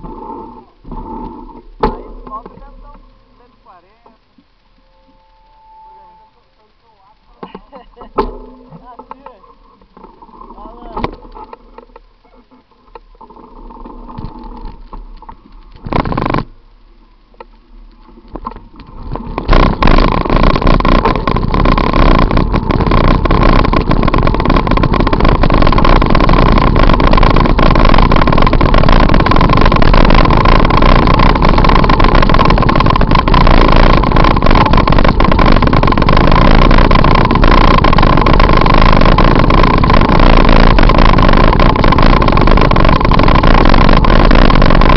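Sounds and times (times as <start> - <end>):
wind noise on microphone: 13.6 - 16.5, 18.2 - 44.9.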